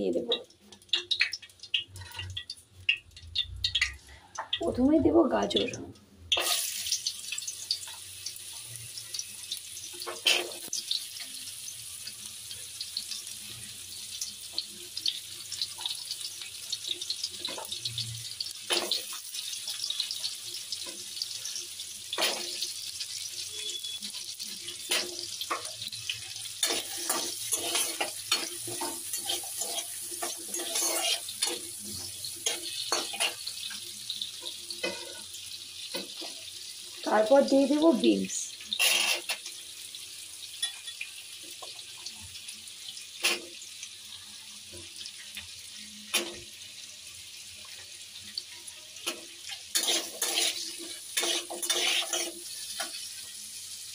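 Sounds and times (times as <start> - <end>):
carrots sizzling in pan: 0.0 - 53.9
metal spatula scraping pan: 26.6 - 33.5, 38.7 - 39.4, 49.7 - 53.0.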